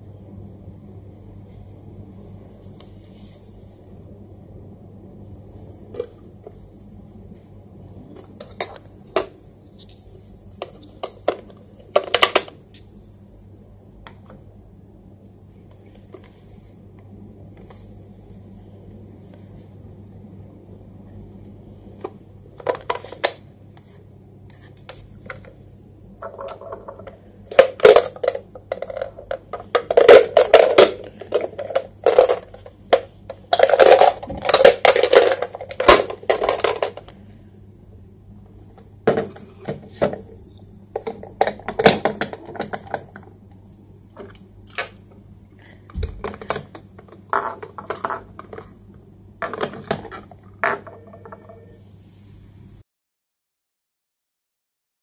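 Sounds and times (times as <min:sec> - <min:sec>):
low steady hum: 0:00.0 - 0:52.8
plastic pieces clacking and snapping: 0:10.6 - 0:12.6, 0:26.2 - 0:37.1, 0:41.0 - 0:43.2.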